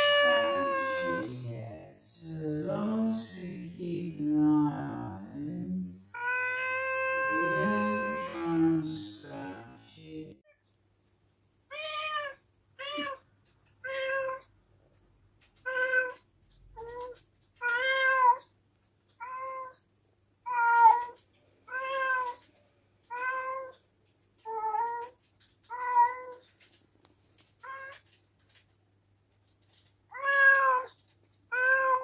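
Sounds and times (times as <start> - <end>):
cat meowing: 0.0 - 1.4, 6.1 - 8.6, 11.7 - 13.2, 13.8 - 14.5, 15.5 - 18.5, 19.1 - 19.8, 20.4 - 23.8, 24.4 - 26.5, 27.6 - 28.2, 29.7 - 32.0.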